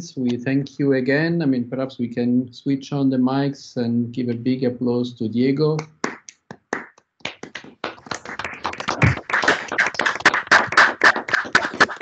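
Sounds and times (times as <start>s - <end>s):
people clapping: 5.8s - 12.0s.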